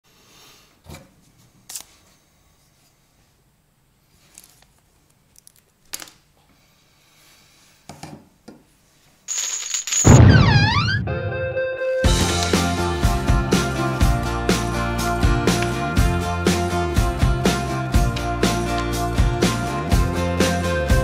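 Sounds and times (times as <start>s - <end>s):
loud music: 10.1s - 21.0s.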